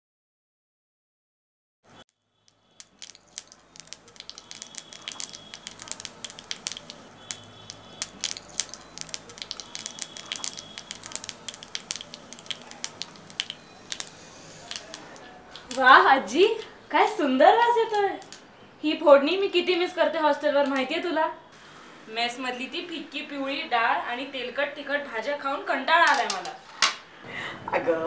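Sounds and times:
spices sizzling in hot oil: 0:01.9 - 0:16.0
sharp popping spices: 0:01.9 - 0:16.1, 0:17.7 - 0:18.6.

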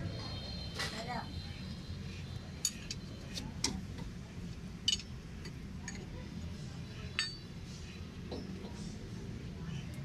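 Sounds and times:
spanner clinking on metal: 0:04.8 - 0:06.1, 0:07.2 - 0:07.5.

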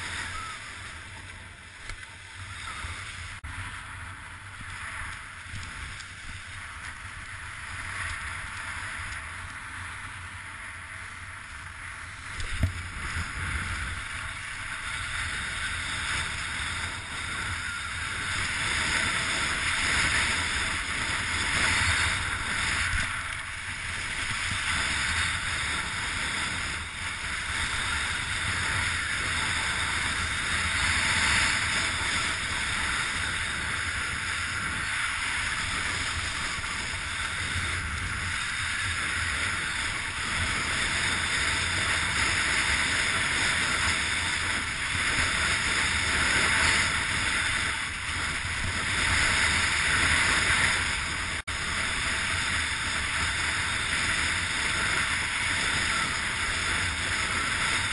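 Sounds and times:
wind buffeting microphone: 0:00.0 - 0:57.9.

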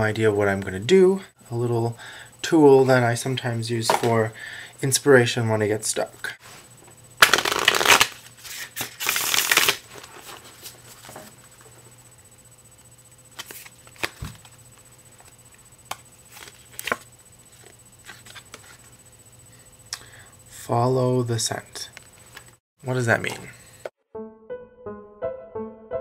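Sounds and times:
cards shuffling: 0:07.2 - 0:11.1, 0:13.4 - 0:14.6, 0:15.9 - 0:18.8.

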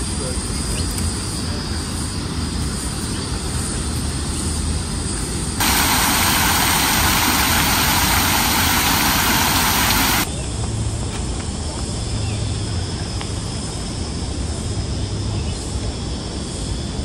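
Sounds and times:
fountain water splashing into basin: 0:05.6 - 0:10.3.

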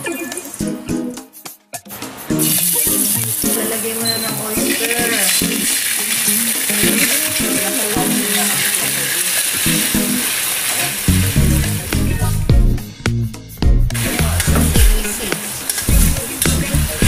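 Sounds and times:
background music: 0:00.0 - 0:17.0
garlic sizzling in hot oil: 0:02.3 - 0:12.5, 0:13.9 - 0:17.0
spatula stirring in wok: 0:02.5 - 0:11.8.

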